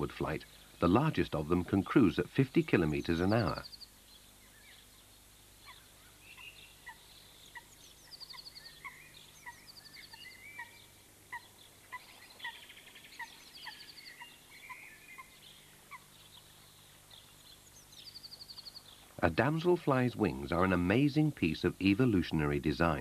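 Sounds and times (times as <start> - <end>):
small birds chirping: 0.0 - 23.0
bird trills: 2.9 - 19.1.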